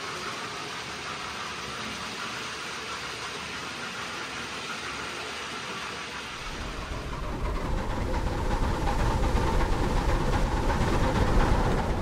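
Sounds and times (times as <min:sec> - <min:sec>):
model train rumbling on rails: 0:00.0 - 0:12.0.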